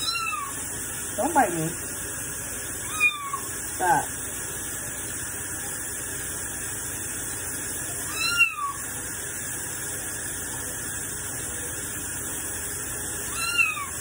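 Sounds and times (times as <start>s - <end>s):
cat meowing: 0.0s - 0.6s, 2.8s - 3.5s, 8.1s - 8.8s, 13.3s - 14.0s.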